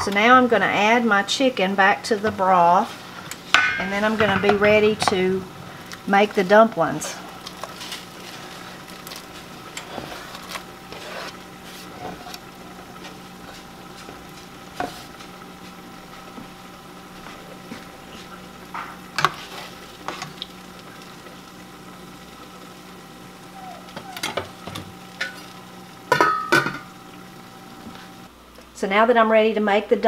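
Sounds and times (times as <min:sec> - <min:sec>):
broth boiling in a pot: 0:00.0 - 0:30.0
faint steady hum: 0:00.0 - 0:30.0
metal ladle knocking on pot: 0:03.6 - 0:05.2
scraping on wooden cutting board: 0:09.8 - 0:12.4.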